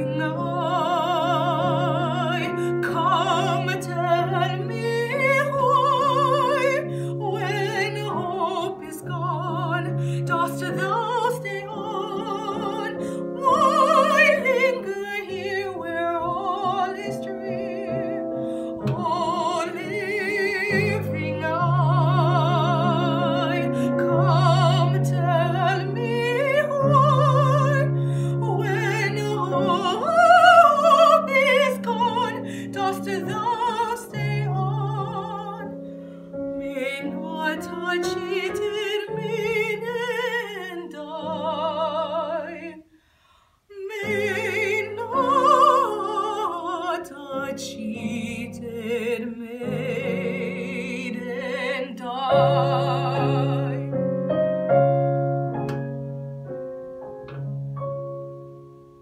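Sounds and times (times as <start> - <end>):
piano accompaniment: 0.0 - 42.9, 43.8 - 59.0
woman singing operatic aria: 0.0 - 42.9, 43.6 - 54.2.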